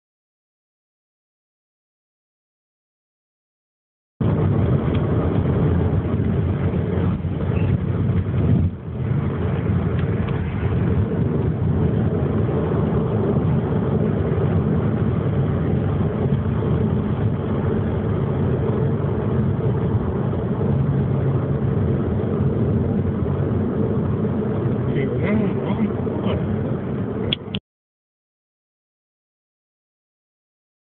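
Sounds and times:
road noise inside car: 4.2s - 27.6s
sports car engine: 4.2s - 27.6s.

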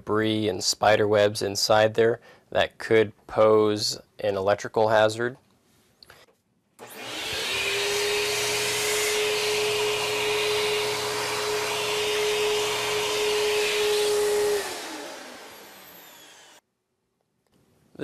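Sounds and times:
vacuum cleaner motor whining: 6.8s - 16.6s.

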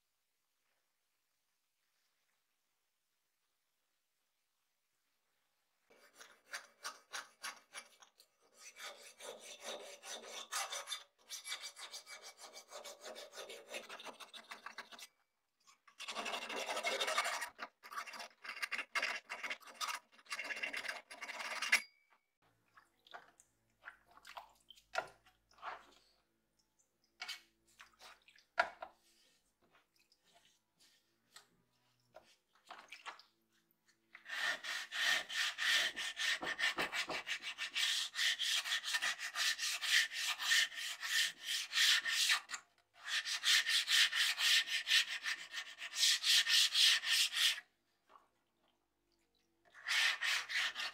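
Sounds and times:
scraping on steel blade: 6.0s - 15.1s.

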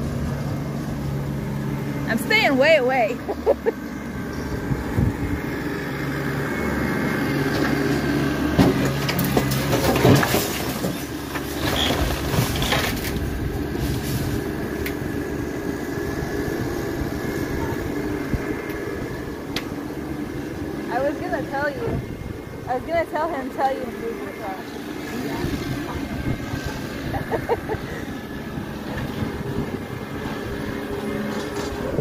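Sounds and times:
tractor engine running: 0.0s - 32.0s
falling debris crashing: 8.5s - 14.6s.

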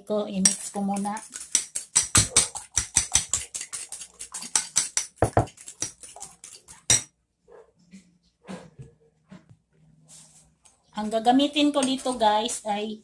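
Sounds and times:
whisk clinking against bowl: 0.4s - 7.1s.

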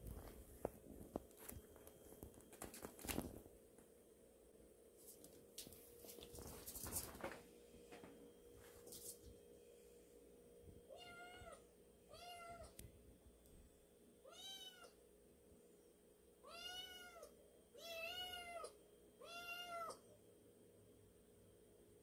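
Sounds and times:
kitten meowing: 16.4s - 20.0s.

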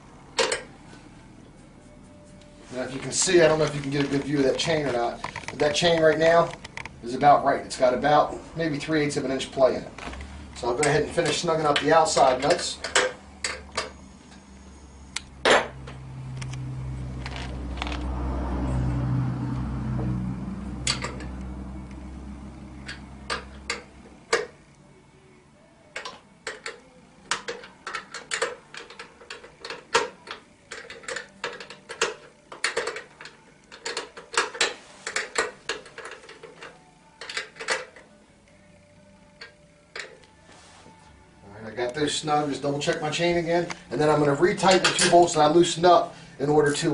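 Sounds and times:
low hum: 12.3s - 34.0s
wrench clicking on nuts: 26.0s - 38.0s.

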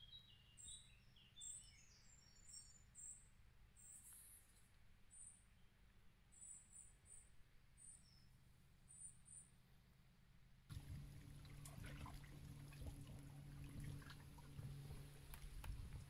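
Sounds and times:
low steady hum: 2.1s - 16.0s
water lapping against stone: 10.7s - 16.0s.

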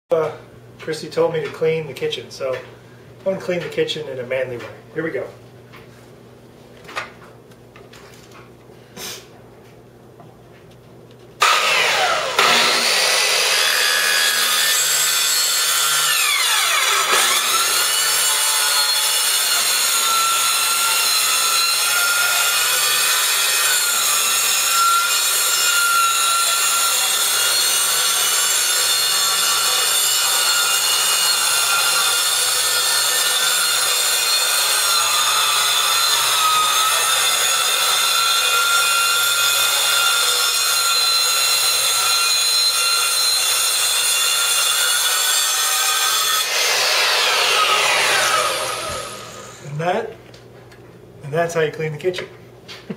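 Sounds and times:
circular saw cutting tile: 11.4s - 49.7s.

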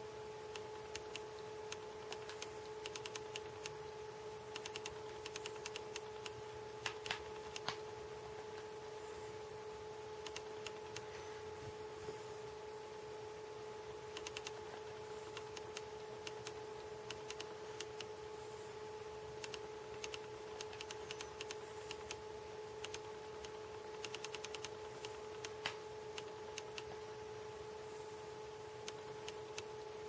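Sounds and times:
steady hum: 0.0s - 30.0s
faint irregular clicks: 0.5s - 3.9s, 4.5s - 8.7s, 10.2s - 11.2s, 14.1s - 18.2s, 19.3s - 22.2s, 22.8s - 27.0s, 28.8s - 29.8s.

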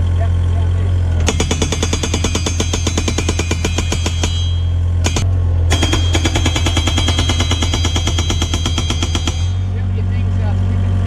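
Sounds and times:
excavator engine hum: 0.0s - 11.0s
hydraulic breaker hammering post: 1.2s - 9.8s.

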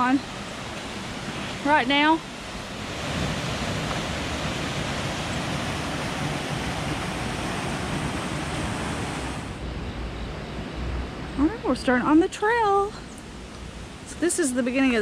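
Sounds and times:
waterfall rushing: 0.8s - 9.5s.

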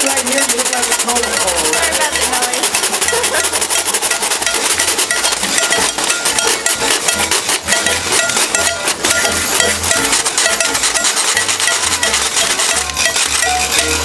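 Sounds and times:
cowbell struck: 0.0s - 14.0s
washboard scraped with stick: 0.0s - 14.0s.

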